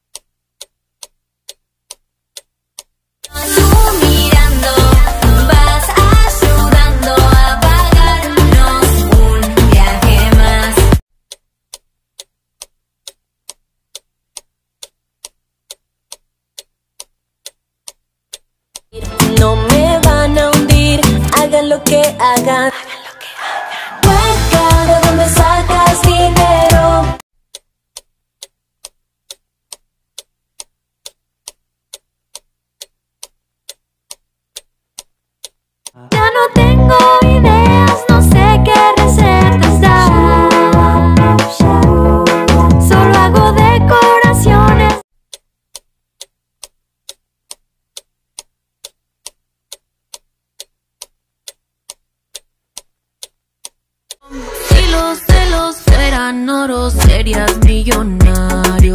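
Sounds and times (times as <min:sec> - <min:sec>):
clock ticking: 0:00.0 - 0:22.4, 0:27.5 - 0:37.2, 0:45.3 - 0:56.2, 0:57.0 - 0:58.9
pop song with singing: 0:03.3 - 0:11.0, 0:19.0 - 0:27.2, 0:36.0 - 0:45.0, 0:54.3 - 0:58.9.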